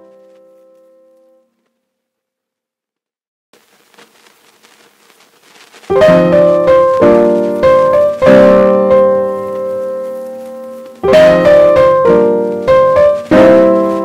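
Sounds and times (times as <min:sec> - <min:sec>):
piano chords ringing: 0:00.0 - 0:01.5, 0:05.9 - 0:14.0.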